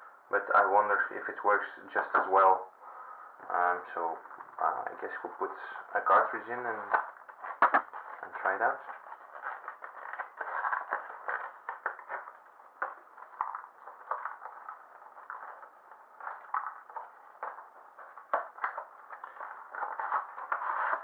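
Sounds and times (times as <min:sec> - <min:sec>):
cardboard packaging rustling: 0:06.5 - 0:21.0.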